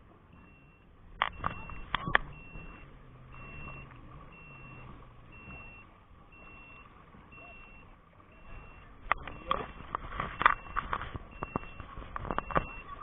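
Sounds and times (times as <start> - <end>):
high electronic beeps: 0.3 - 13.0.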